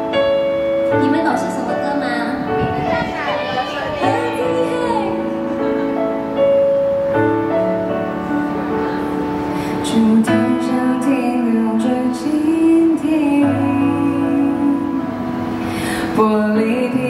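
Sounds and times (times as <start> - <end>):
piano chords: 0.0 - 17.0
woman singing pop ballad: 9.6 - 17.0.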